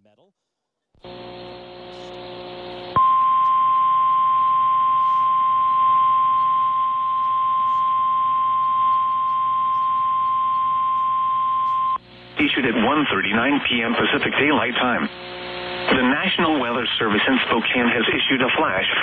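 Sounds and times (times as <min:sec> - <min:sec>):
receiver hiss: 0:01.0 - 0:19.0
steady high alarm tone: 0:03.0 - 0:12.0.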